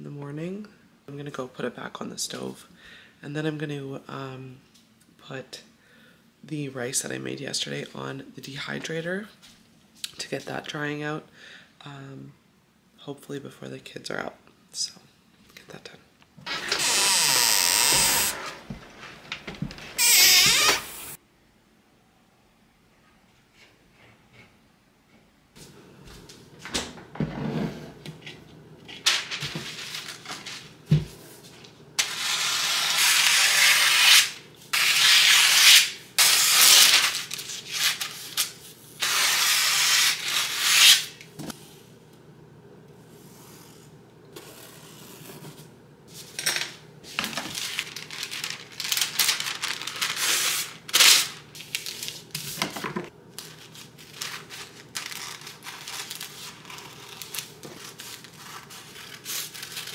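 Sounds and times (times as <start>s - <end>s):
paper rustling: 28.9s - 30.8s, 47.1s - 59.9s.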